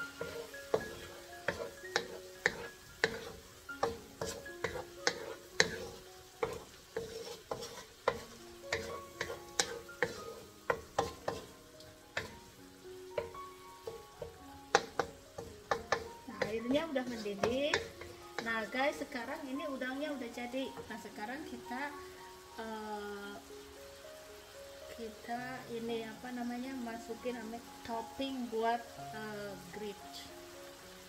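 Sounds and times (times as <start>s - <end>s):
wooden spoon scraping a wok: 0.0s - 19.1s
food sizzling in water: 0.0s - 31.0s.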